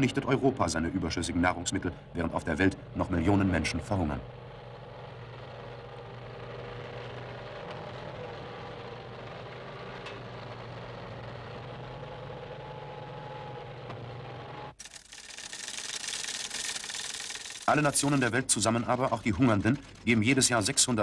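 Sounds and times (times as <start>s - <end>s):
heavy vehicle engine humming: 0.0s - 14.8s.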